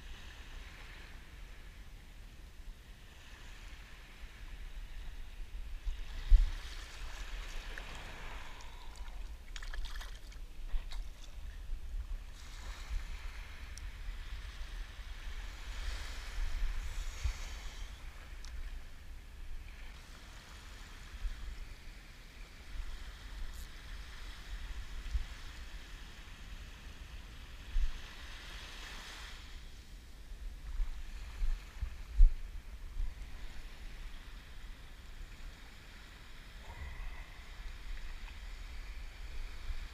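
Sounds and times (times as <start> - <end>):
small waves lapping at shore: 0.0 - 39.9
wind buffeting microphone: 4.6 - 19.8, 30.4 - 34.2.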